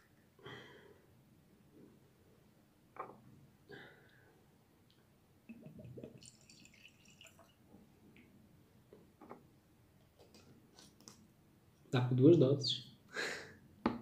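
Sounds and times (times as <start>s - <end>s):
liquid trickling into glass: 5.7s - 7.6s.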